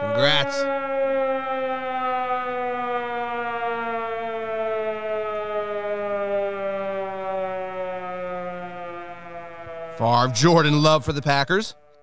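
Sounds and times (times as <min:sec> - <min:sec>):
siren winding down: 0:00.0 - 0:12.0.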